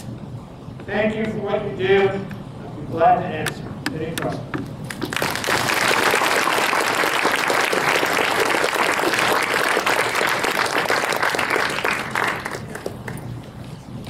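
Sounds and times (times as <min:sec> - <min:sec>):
audience applauding: 0:04.9 - 0:13.4.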